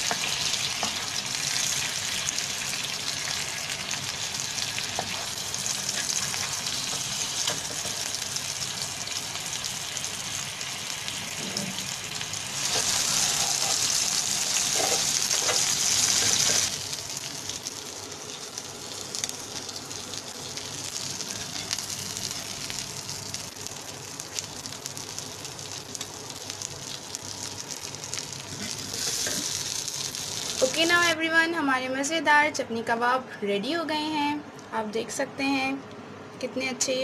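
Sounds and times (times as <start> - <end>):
meat sizzling with crackling: 0.0 - 31.1.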